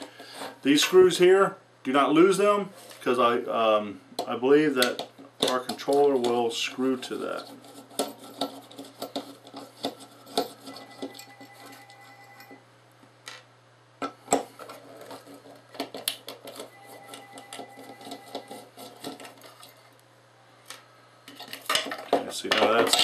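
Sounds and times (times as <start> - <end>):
screwdriver scraping metal: 7.0 - 12.4, 14.6 - 19.8.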